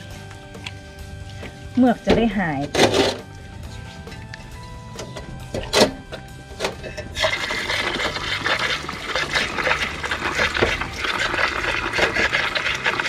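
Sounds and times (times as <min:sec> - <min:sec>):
water running from a hose: 0:07.2 - 0:13.0
water splashing in a basin: 0:07.2 - 0:13.0.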